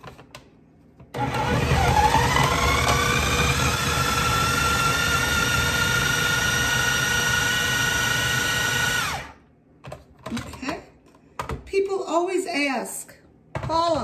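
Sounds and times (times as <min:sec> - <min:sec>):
food processor motor whining: 0:01.1 - 0:09.4.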